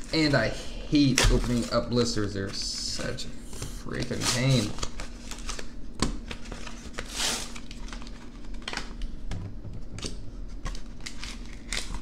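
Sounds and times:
plastic packaging crackling: 0:01.0 - 0:02.8, 0:04.0 - 0:09.1.

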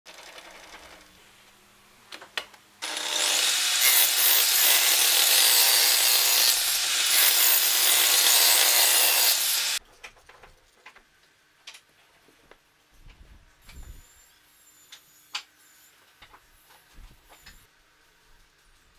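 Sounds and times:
table saw cutting plywood: 0:02.8 - 0:09.8.

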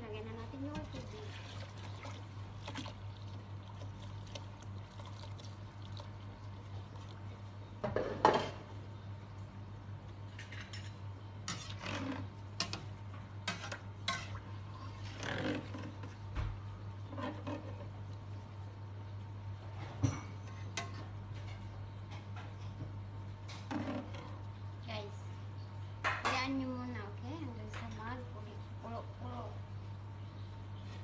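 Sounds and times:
fork and spoon scraping pot: 0:11.5 - 0:12.8.

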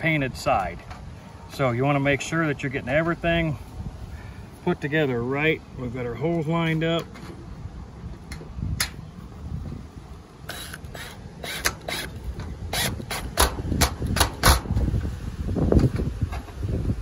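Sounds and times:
clicks and knocks of metal panels: 0:13.2 - 0:14.8.

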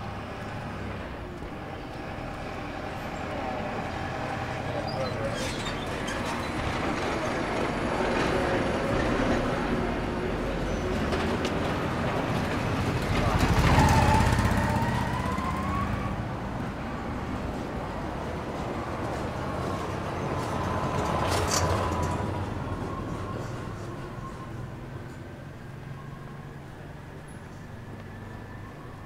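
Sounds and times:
motor vehicle passing: 0:12.3 - 0:17.7.

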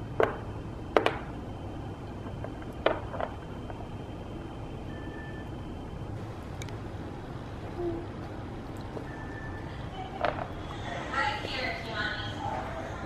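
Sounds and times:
low room hum: 0:00.0 - 0:13.0
cookies tapping on plastic tray: 0:00.2 - 0:01.3.

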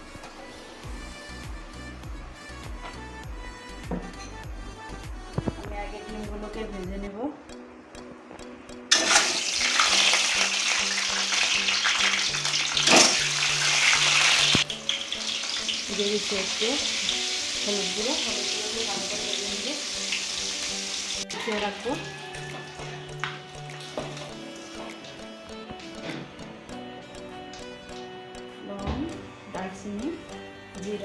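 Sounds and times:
eggs sizzling in hot oil: 0:08.9 - 0:25.6.

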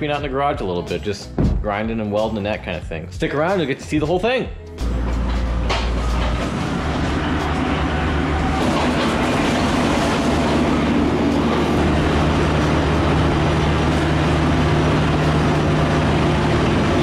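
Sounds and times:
excavator diesel engine running: 0:04.8 - 0:17.0.

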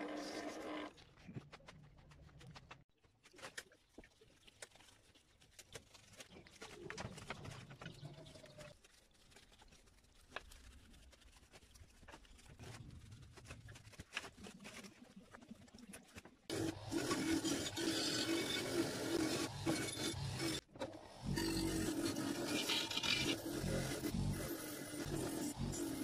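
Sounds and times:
stiff brush scrubbing metal: 0:21.3 - 0:26.0.

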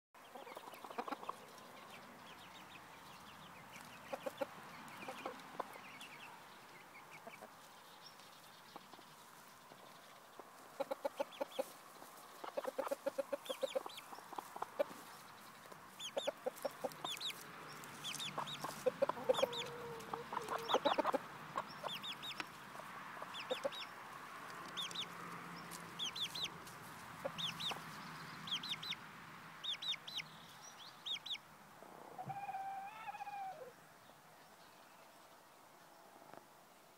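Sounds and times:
hens clucking: 0:00.2 - 0:02.5, 0:03.4 - 0:07.7, 0:10.3 - 0:29.0.

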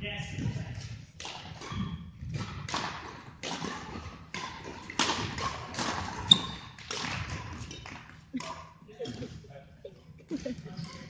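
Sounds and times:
rackets hitting shuttlecock: 0:01.2 - 0:09.4.

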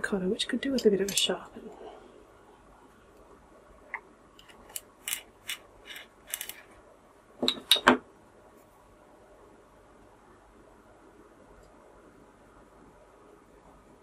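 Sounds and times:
pencil sharpener scraping: 0:04.4 - 0:06.7.

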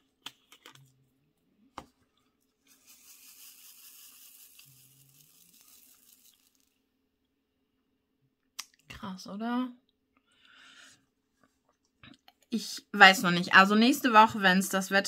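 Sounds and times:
beads rattling in plastic tray: 0:02.7 - 0:06.7.

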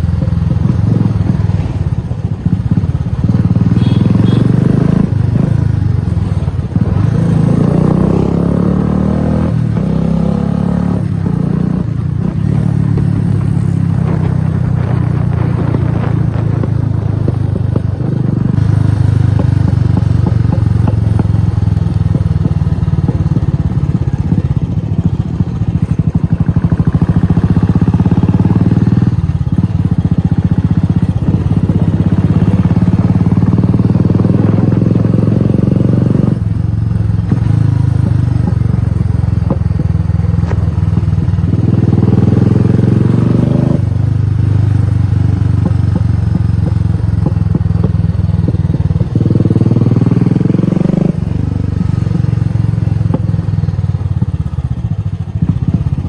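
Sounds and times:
motorcycle engine thumping: 0:11.2 - 0:34.8, 0:35.4 - 0:42.4, 0:44.0 - 0:56.0.

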